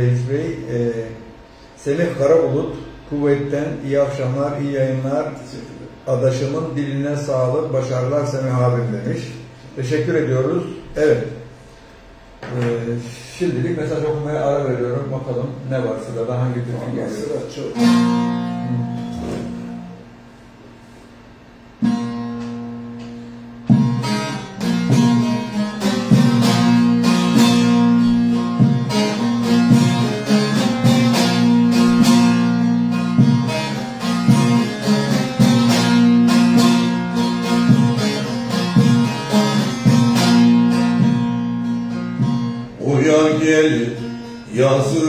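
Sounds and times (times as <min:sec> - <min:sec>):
long-necked lute picked melody: 0:16.8 - 0:20.1, 0:21.8 - 0:45.0.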